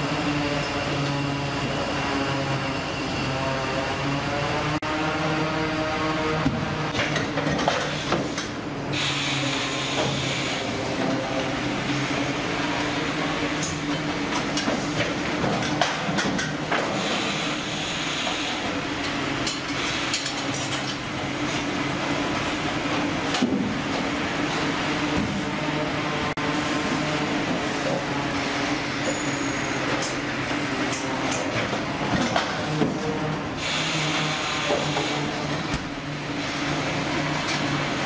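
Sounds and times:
conveyor machinery din: 0.0s - 38.0s
machinery clicks and clanks: 6.4s - 25.5s, 26.6s - 38.0s.

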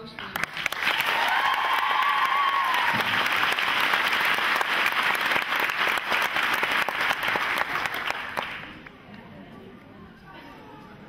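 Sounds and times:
crowd applauding: 0.2s - 8.9s.

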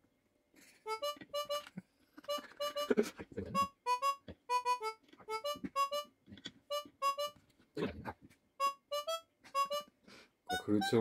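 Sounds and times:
harmonica-like light tune: 0.8s - 6.1s, 6.7s - 7.4s, 8.6s - 11.0s.

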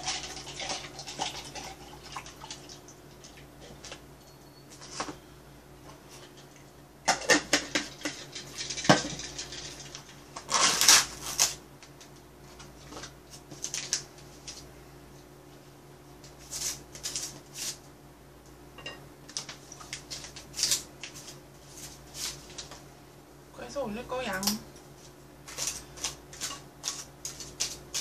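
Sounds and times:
plastic packet crinkling: 12.9s - 14.6s.

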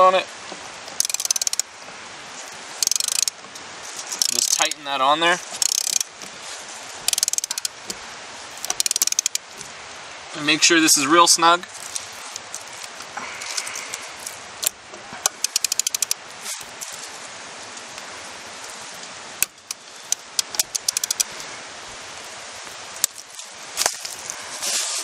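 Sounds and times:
socket ratchet clicking: 0.9s - 1.7s, 2.8s - 3.4s, 4.0s - 4.8s, 5.6s - 6.2s, 7.0s - 7.8s, 8.6s - 9.5s, 13.6s - 16.2s, 19.4s - 21.3s.

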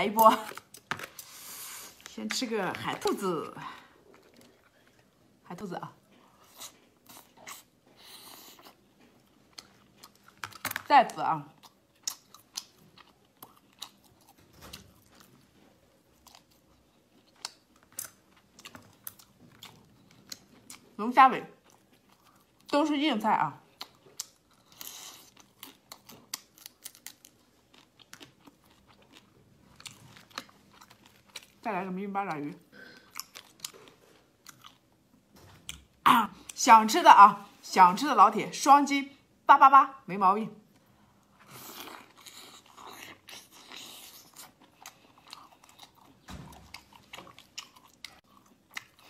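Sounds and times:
close chewing with wet crackles: 2.0s - 31.8s, 32.4s - 35.1s, 40.7s - 49.0s.

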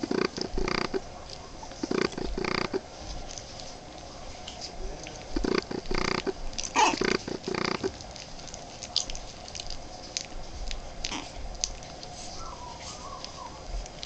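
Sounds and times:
puppies grunting and squeaking: 0.0s - 2.9s, 5.0s - 9.7s, 11.0s - 14.0s
puppy squealing: 6.6s - 7.9s.

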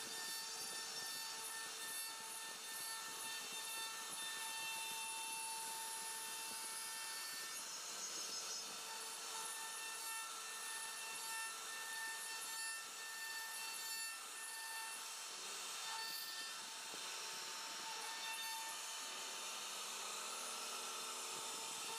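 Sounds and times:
hiss of wood cutting: 0.0s - 13.2s, 14.1s - 21.9s
router spindle whining: 0.0s - 21.9s.

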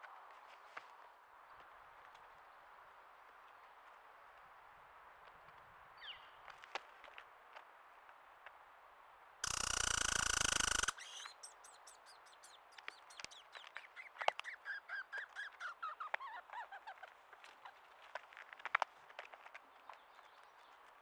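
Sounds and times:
short chirping notes: 9.4s - 11.5s.

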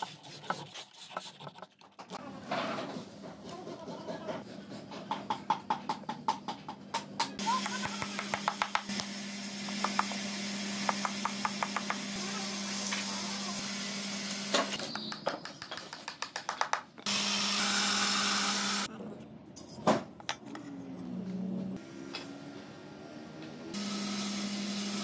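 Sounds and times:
power saw cutting wood: 17.1s - 18.9s, 23.7s - 25.0s.

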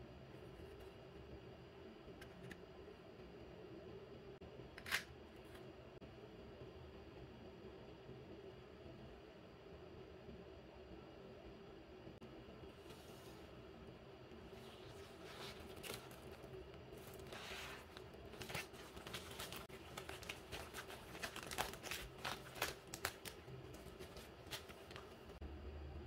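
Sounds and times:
faint room hum: 0.0s - 26.0s
plastic mailer crinkling: 14.8s - 25.4s.

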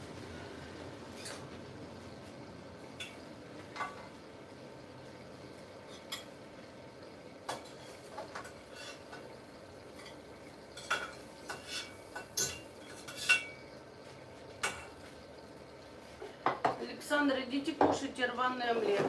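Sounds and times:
dishes and cutlery clinking: 10.8s - 13.6s.

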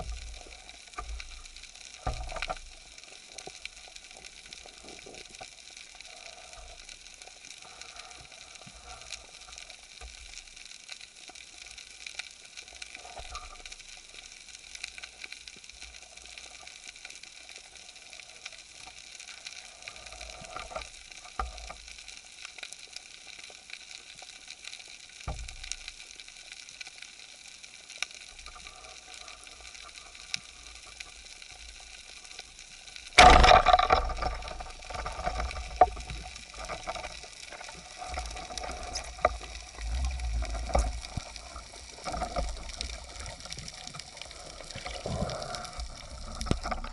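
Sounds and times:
underwater crackling hiss: 0.0s - 46.9s
speargun firing crack: 33.2s - 34.0s.

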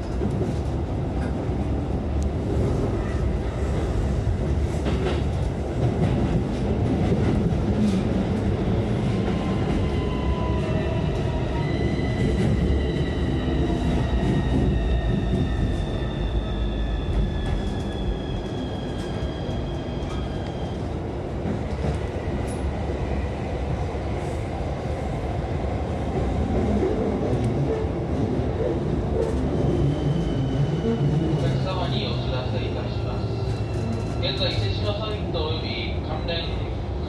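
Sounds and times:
train wheels rumbling on rails: 0.0s - 37.0s.

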